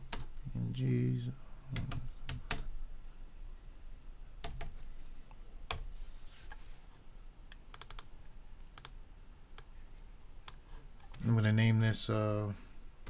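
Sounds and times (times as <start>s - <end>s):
computer keyboard keystrokes: 0.0s - 0.3s, 1.8s - 2.7s, 4.4s - 4.8s, 7.7s - 8.1s, 8.8s - 9.0s.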